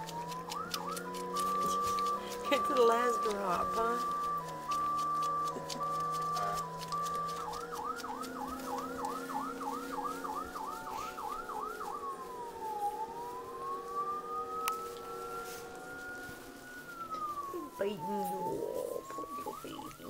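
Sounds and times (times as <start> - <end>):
emergency vehicle siren: 0.0 - 20.0.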